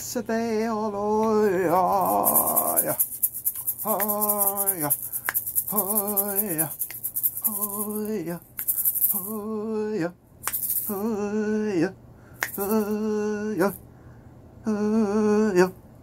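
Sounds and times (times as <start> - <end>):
man chanting long notes: 1.5 - 3.0.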